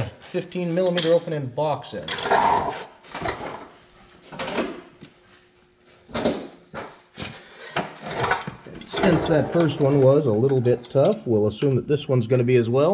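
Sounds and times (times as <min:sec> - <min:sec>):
wrenches clanking: 0:02.0 - 0:02.6, 0:08.0 - 0:12.1
metal drawer opening and closing: 0:08.0 - 0:11.1.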